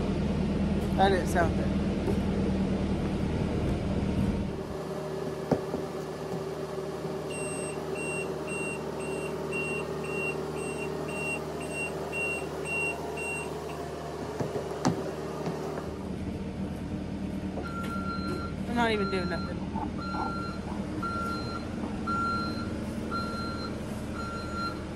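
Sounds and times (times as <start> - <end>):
engine running: 0.0 - 24.9
reverse alarm beeping: 7.3 - 13.8, 17.6 - 24.9.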